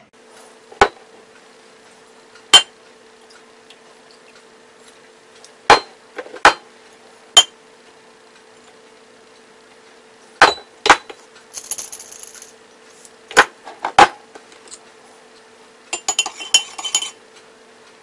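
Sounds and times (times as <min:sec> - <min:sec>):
faint steady hum: 0:00.0 - 0:18.0
glass bottles clicking and knocking: 0:16.0 - 0:17.2.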